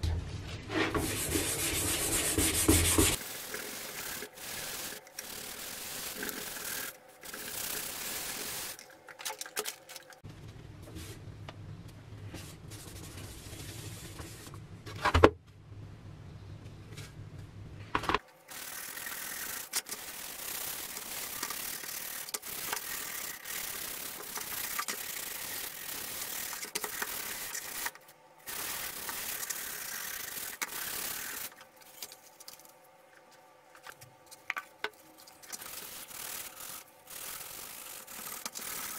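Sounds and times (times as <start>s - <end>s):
scouring pad scrubbing metal: 0.7s - 8.8s
low hum: 10.2s - 18.1s.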